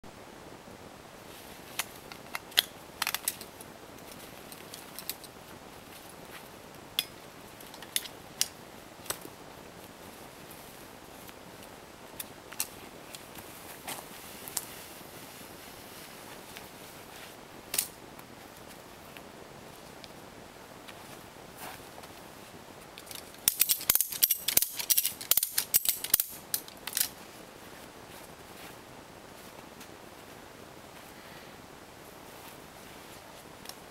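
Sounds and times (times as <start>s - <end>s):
ratchet strap buckle clicking: 23.0s - 27.1s.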